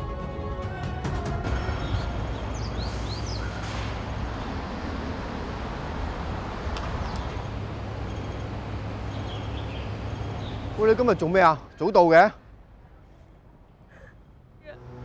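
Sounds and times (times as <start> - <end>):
distant traffic rumble: 1.4 - 15.0
bird chirps: 1.7 - 3.9, 6.8 - 12.6.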